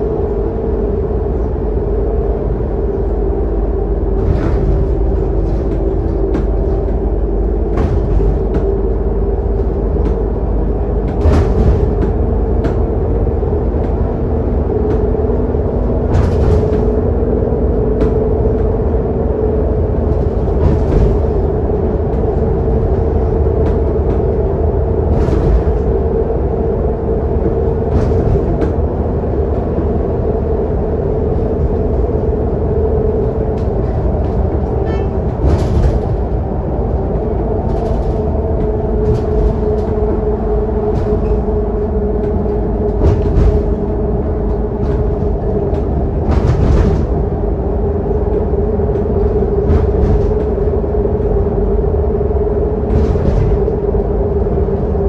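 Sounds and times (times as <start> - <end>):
bus diesel engine running: 0.0 - 55.0
low road rumble: 0.0 - 55.0.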